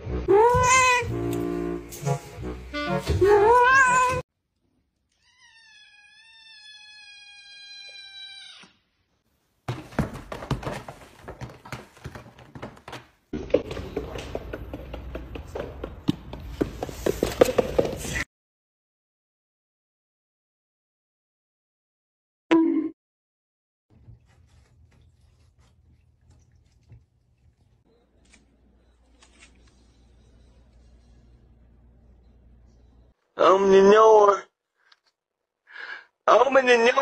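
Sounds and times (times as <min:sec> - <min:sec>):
cat meowing: 0:00.3 - 0:01.1, 0:03.4 - 0:04.2, 0:05.1 - 0:08.8.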